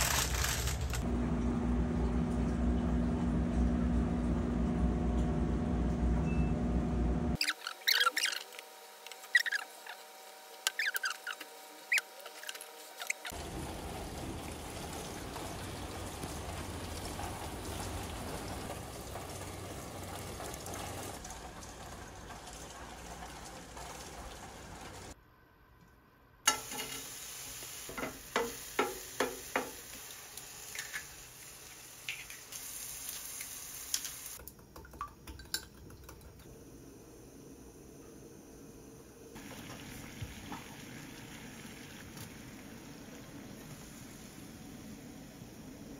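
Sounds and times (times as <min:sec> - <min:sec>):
steady rain falling: 0:13.3 - 0:25.2.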